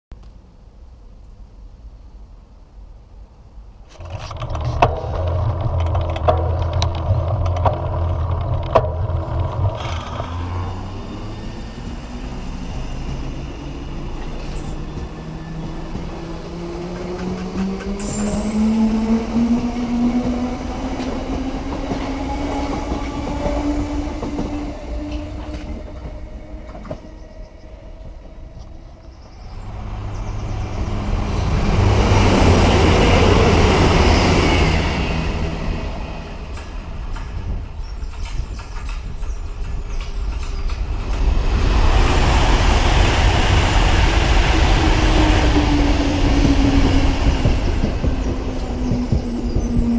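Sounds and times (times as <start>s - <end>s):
wheels clicking over rail joints: 3.9s - 12.1s, 32.0s - 41.7s
train motors whining: 4.0s - 49.9s
train passing loudly: 4.8s - 49.9s.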